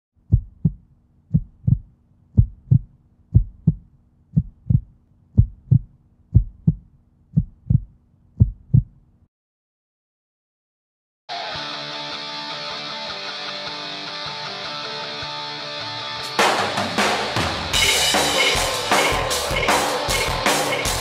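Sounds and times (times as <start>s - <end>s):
heartbeat thumps: 0.2s - 9.0s.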